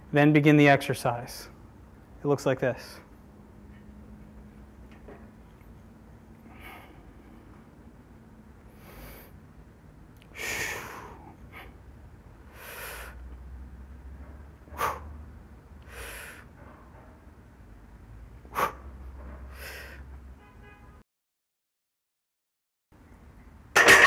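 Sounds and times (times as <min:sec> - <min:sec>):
man breathing out hard: 0:10.3 - 0:11.8, 0:19.5 - 0:20.1.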